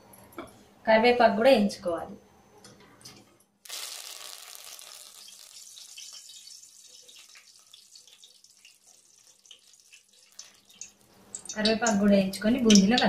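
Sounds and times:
leaves sizzling in hot oil: 3.6 - 12.0.

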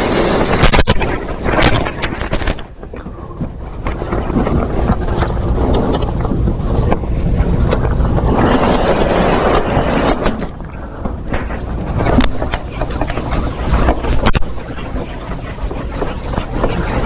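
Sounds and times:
low microphone rumble: 0.0 - 17.0
chalk scraping on blackboard: 12.2 - 17.0.

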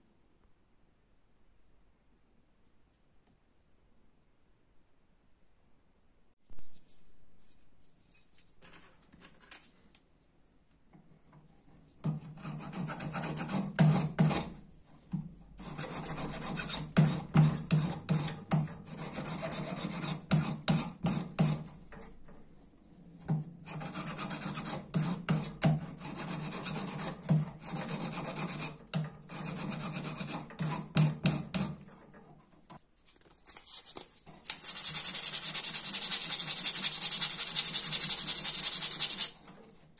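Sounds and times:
file rasping on copper wire: 12.0 - 15.0, 15.6 - 22.2, 23.6 - 32.2, 34.4 - 39.9.

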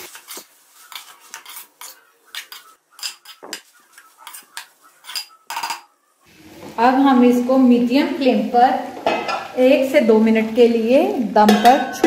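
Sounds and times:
metal spatula scraping metal pan: 0.0 - 5.9.

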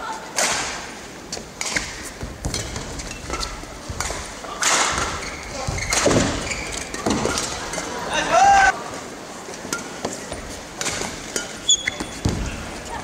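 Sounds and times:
shoe squeaks on court floor: 5.1 - 7.0, 11.6 - 12.4.

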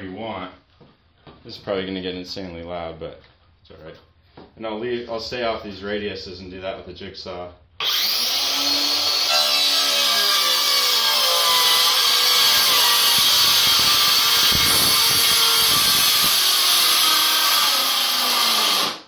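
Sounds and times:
circular saw cutting wood: 7.8 - 19.0.

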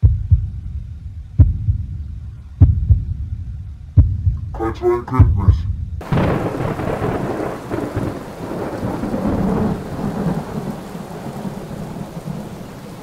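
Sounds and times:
low rumble of thunder: 5.2 - 13.0
steady rain: 6.0 - 13.0.

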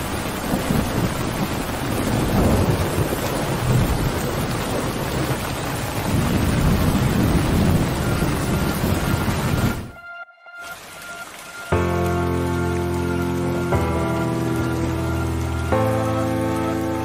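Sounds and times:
low rolling thunder: 0.0 - 10.0
heavy rain pouring: 0.0 - 17.0.

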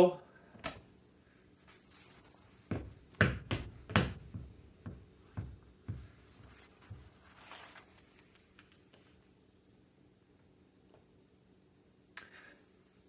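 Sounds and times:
knocks and thumps: 2.7 - 7.2.

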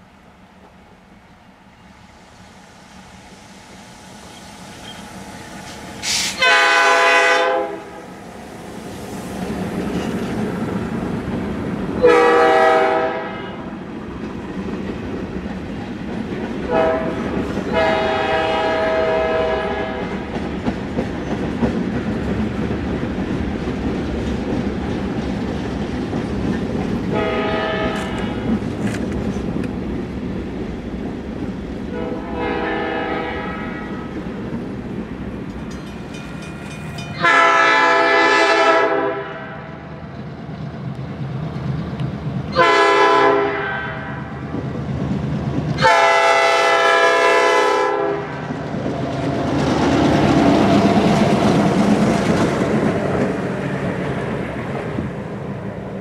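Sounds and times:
train on rails: 0.0 - 56.0
locomotive horn blasts: 6.1 - 8.0, 12.0 - 13.7, 16.7 - 20.1, 27.1 - 28.4, 31.9 - 33.9, 37.2 - 39.7, 42.5 - 44.3, 45.8 - 48.3.

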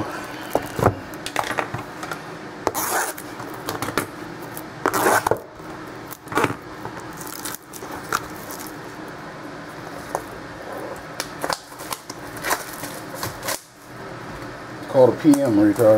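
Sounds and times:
packaging scraping and tearing: 2.7 - 3.3, 4.9 - 5.4, 11.5 - 13.7.

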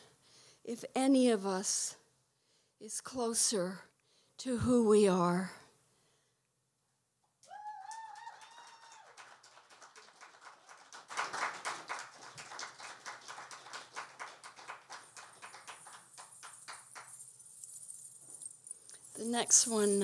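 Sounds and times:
audience applauding: 7.8 - 17.3.

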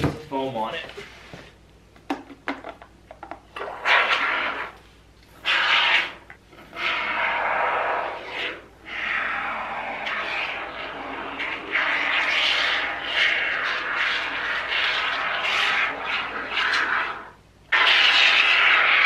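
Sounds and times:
spray foam can hissing: 5.4 - 6.2, 6.8 - 19.0.

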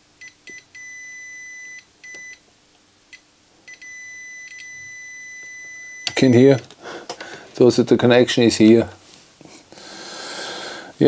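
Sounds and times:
multimeter continuity beep: 0.2 - 2.4, 3.1 - 6.7.

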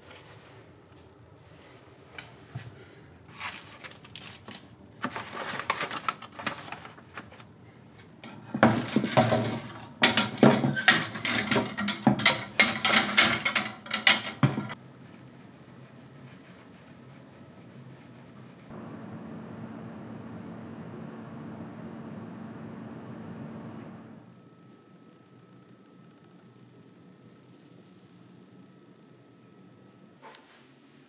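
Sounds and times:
shirt rustling in wooden drawer: 8.3 - 14.8
wooden hangers clacking on metal rail: 8.5 - 14.8.

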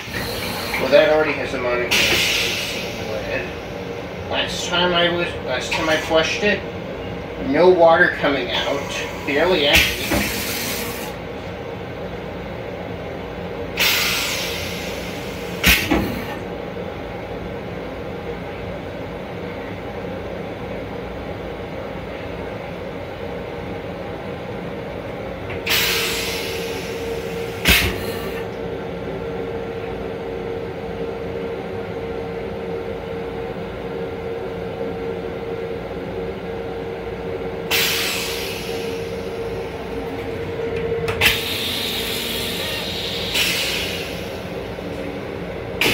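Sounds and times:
toilet flushing water hiss: 0.0 - 1.3, 1.9 - 3.8, 8.5 - 11.2, 13.8 - 16.4, 25.6 - 28.4, 37.7 - 39.8, 41.2 - 44.8
railcar hum: 0.0 - 45.9.

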